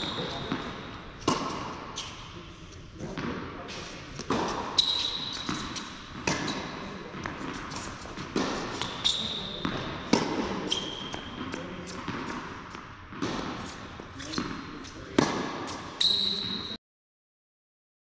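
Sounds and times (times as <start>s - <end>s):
tennis ball bouncing: 0.0s - 2.2s, 3.0s - 3.5s, 4.2s - 16.0s
tennis racket strikes: 0.0s - 2.2s, 4.2s - 16.0s
sneaker squeaks: 0.0s - 2.4s, 3.1s - 12.4s, 13.6s - 16.8s.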